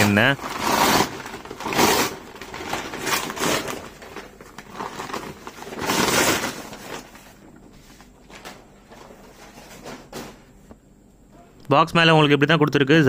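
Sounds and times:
paper packaging rustling and crumpling: 0.0 - 10.4.

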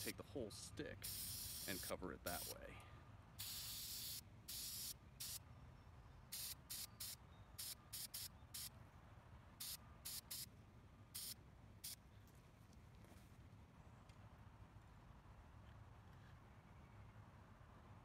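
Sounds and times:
aerosol spray hissing bursts: 1.0 - 2.6, 3.4 - 5.4, 6.3 - 8.7, 9.6 - 10.5, 11.2 - 12.0.

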